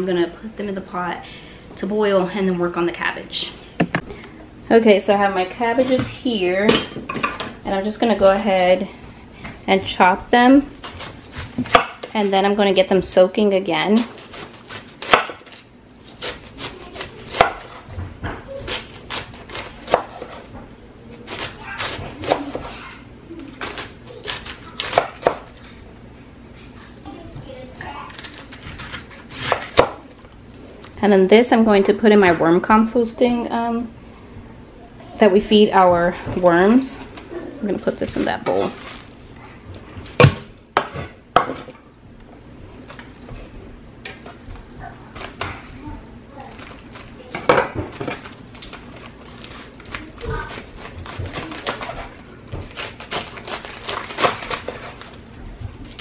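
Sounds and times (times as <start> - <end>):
knife slicing cabbage: 10.7 - 12.3, 14.0 - 20.5, 21.2 - 25.6, 28.0 - 30.0, 48.0 - 55.1
knife chopping on wooden board: 10.8 - 12.1, 14.3 - 15.5, 18.7 - 20.4, 24.8 - 25.4.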